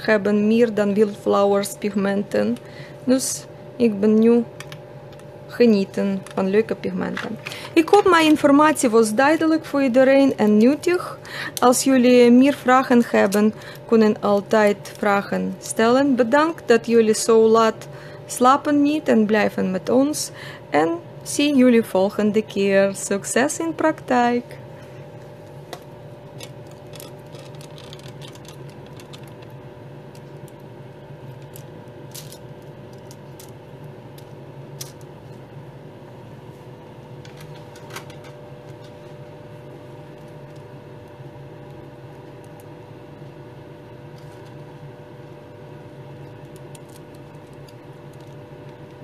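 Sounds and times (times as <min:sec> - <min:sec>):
machine hum: 0:00.0 - 0:49.0.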